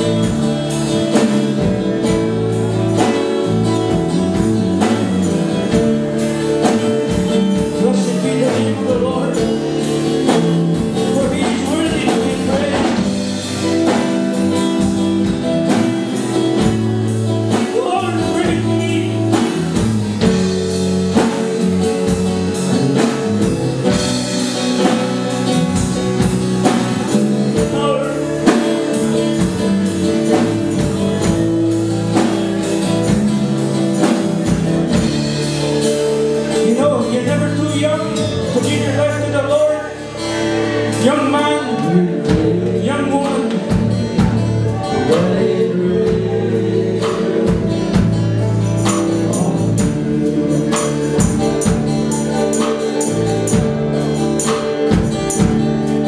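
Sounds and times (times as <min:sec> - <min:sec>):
worship band playing: 0:00.0 - 0:56.0
singing: 0:44.6 - 0:48.1.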